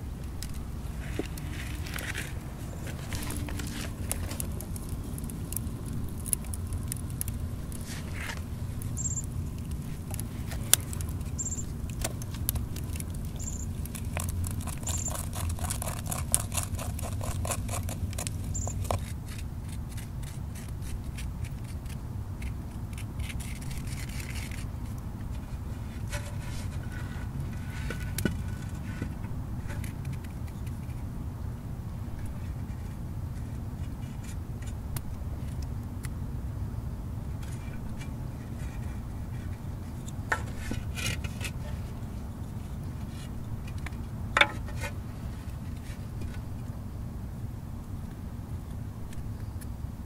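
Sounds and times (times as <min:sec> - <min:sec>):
low background rumble: 0:00.0 - 0:50.0
wooden stick scraping clay pot: 0:00.2 - 0:31.0, 0:37.4 - 0:46.5.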